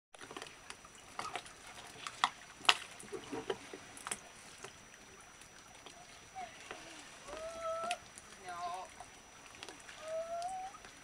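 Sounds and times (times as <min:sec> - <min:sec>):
clicks and knocks on dinghy: 0:00.2 - 0:04.2
light water sounds: 0:00.2 - 0:11.0.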